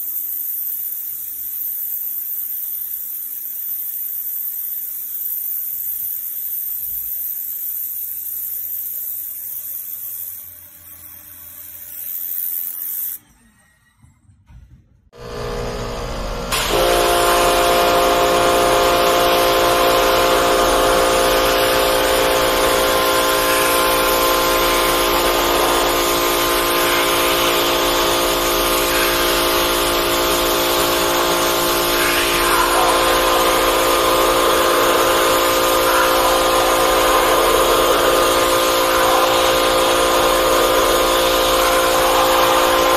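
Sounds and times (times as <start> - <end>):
machine droning hum: 15.2 - 42.9
pressure washer spray hissing: 16.5 - 42.9.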